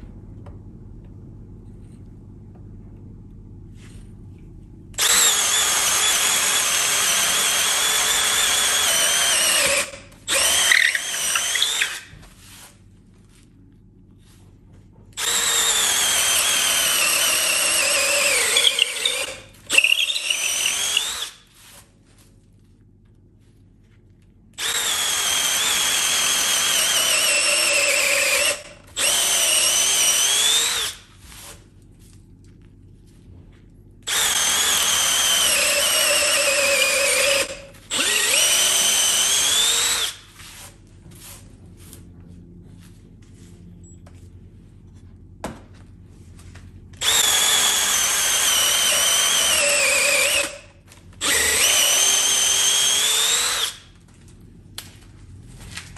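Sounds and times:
cordless drill boring into wood: 5.0s - 12.1s, 15.2s - 21.4s, 24.6s - 31.0s, 34.1s - 40.3s, 47.0s - 53.9s.

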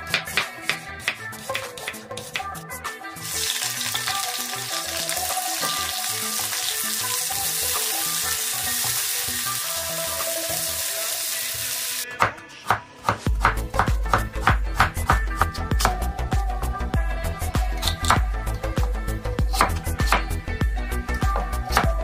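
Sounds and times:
cutter chopping carrot on board: 0.0s - 2.6s, 12.2s - 16.0s, 19.5s - 20.3s
onions sizzling in oil: 3.2s - 12.0s.

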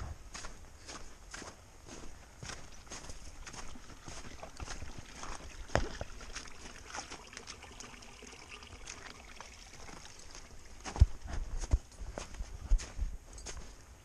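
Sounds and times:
footsteps on snowy rocky trail: 0.0s - 7.5s, 9.7s - 14.0s
trekking pole tapping rocks: 5.7s - 6.1s.

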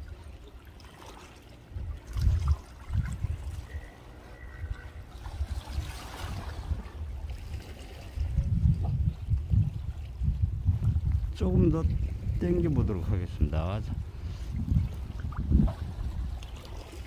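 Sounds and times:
faint harbour water: 0.0s - 17.0s
wind buffeting microphone: 1.6s - 17.0s.

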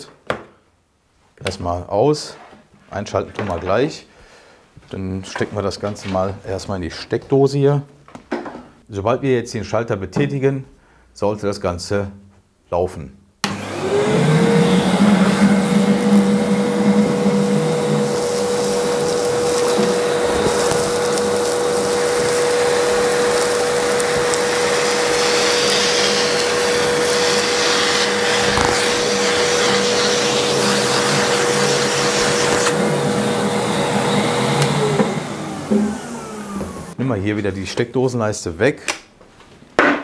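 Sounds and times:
vacuum cleaner motor whining: 13.4s - 37.0s
sawdust sucked through hose: 13.5s - 37.0s.

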